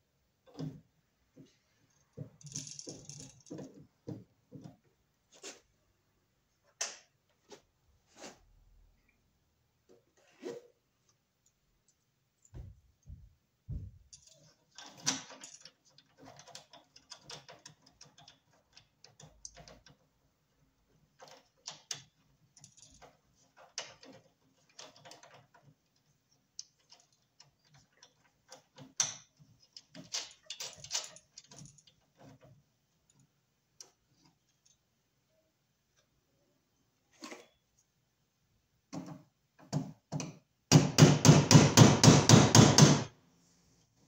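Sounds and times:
metal parts and tools handled: 1.9 - 3.8, 14.0 - 20.0, 21.1 - 33.2.

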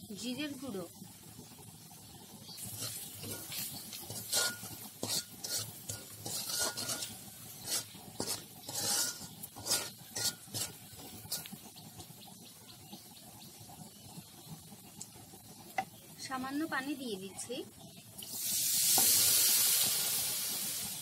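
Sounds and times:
metal spoon scraping a wok: 2.6 - 11.7.

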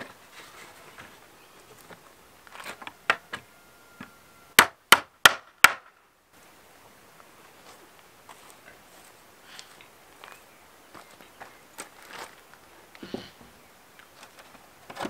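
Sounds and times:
hammer striking wood: 4.6 - 5.9.

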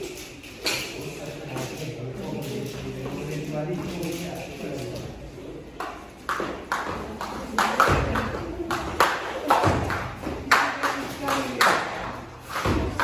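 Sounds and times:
skipping rope slapping floor: 5.8 - 13.0.

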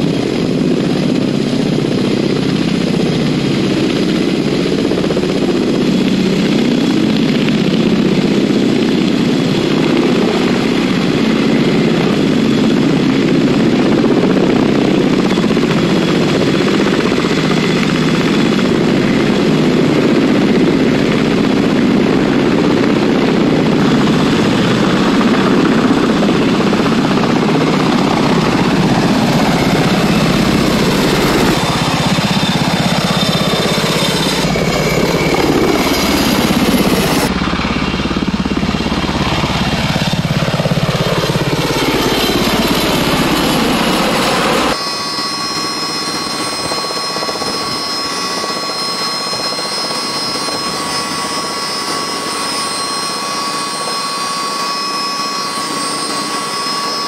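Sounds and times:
helicopters flying overhead: 0.0 - 57.0.

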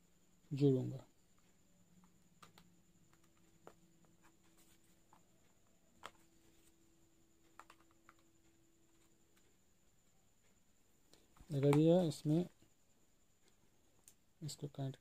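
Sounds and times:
faint clicks and taps of cable: 1.3 - 6.8, 7.4 - 9.6, 11.1 - 12.1, 13.4 - 14.3.

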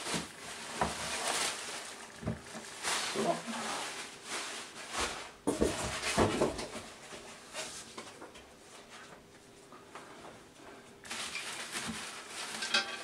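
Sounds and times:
packaging crinkling and rustling: 0.0 - 7.0, 11.0 - 13.0.

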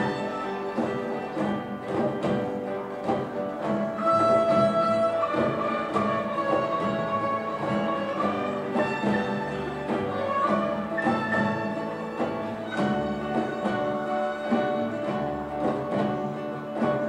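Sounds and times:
bowed violins and cello: 0.0 - 17.0
strummed acoustic guitars: 0.0 - 17.0.

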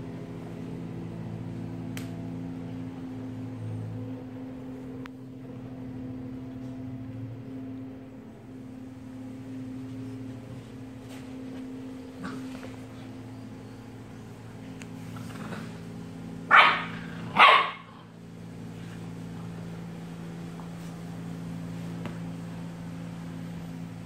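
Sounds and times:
dogs growling: 12.0 - 13.1, 15.0 - 15.9.

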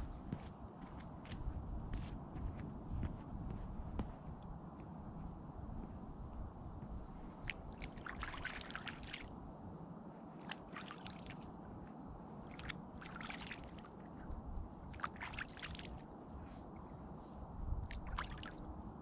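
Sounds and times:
steady low background noise: 0.0 - 19.0
water lapping and trickling: 7.0 - 19.0.

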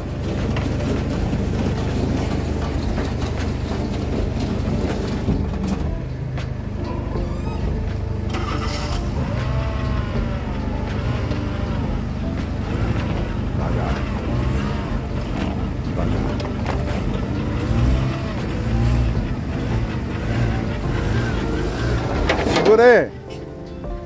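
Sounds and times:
truck engine humming: 0.0 - 24.0.

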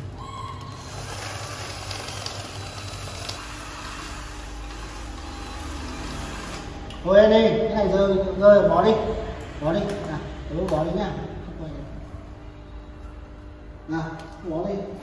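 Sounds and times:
cordless drill boring into plastic pipe: 0.6 - 6.7.

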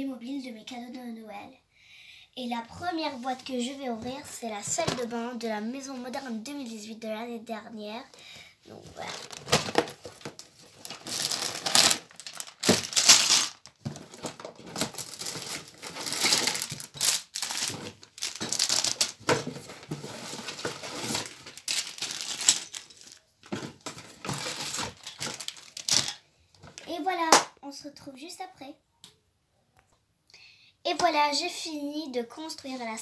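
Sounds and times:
plastic bags crinkling: 9.0 - 26.8
plastic pieces clicking: 11.1 - 19.4, 21.2 - 23.2.

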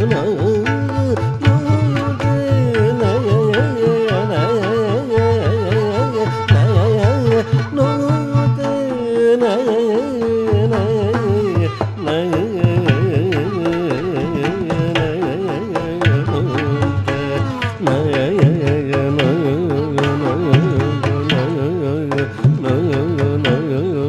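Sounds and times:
man singing: 0.0 - 24.0
violin melody: 0.0 - 24.0.

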